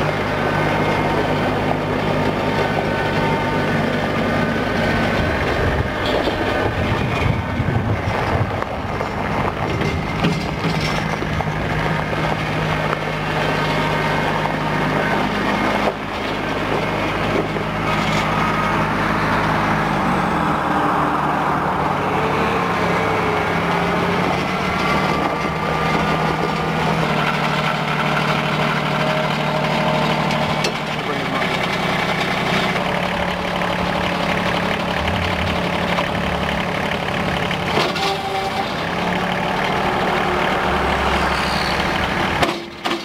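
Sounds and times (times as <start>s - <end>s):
tractor diesel engine running: 0.0s - 43.0s.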